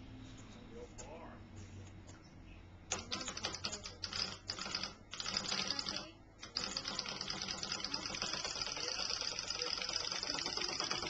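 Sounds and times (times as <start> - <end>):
clockwork toy clicking rattle: 2.9 - 11.0.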